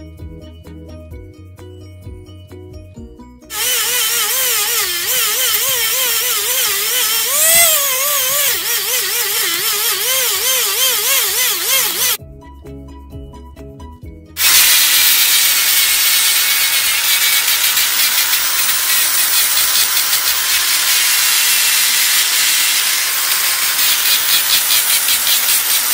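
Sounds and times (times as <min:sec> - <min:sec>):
background music: 0:00.0 - 0:03.5, 0:12.2 - 0:14.4
die grinder grinding wood: 0:03.5 - 0:12.2, 0:14.4 - 0:25.9.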